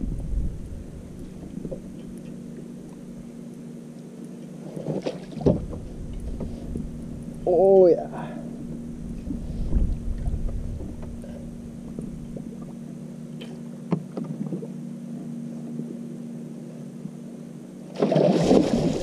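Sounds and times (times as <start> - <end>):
boat motor humming: 0.0 - 19.0
fish splashing water: 17.9 - 19.0.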